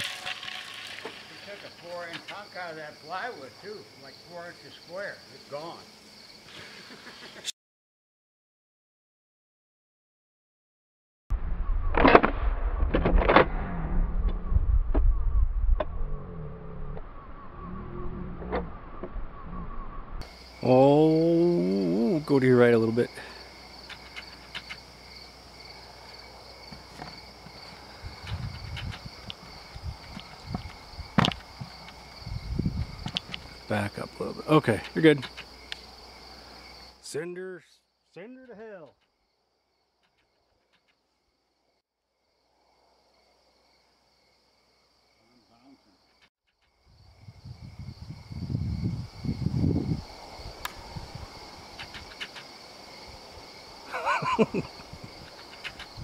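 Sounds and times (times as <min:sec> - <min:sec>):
high pulsing insect trill: 0:00.0 - 0:07.0, 0:16.0 - 0:56.0
low steady insect trill: 0:00.0 - 0:07.4, 0:16.0 - 0:56.0
low rumble: 0:11.3 - 0:20.2
footsteps thudding and rustling: 0:26.6 - 0:32.0.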